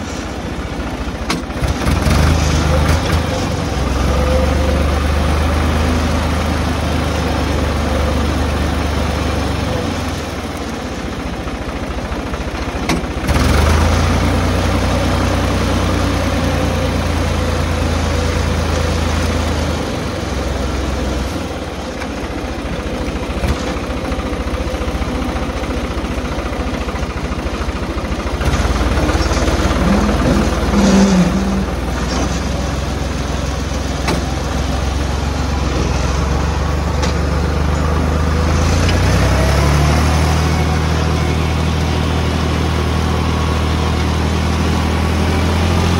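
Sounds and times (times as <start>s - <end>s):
tractor engine running: 0.0s - 45.9s.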